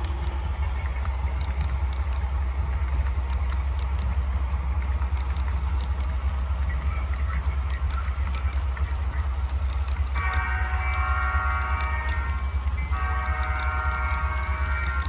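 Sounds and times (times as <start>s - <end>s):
model train rumbling on track: 0.0s - 15.0s.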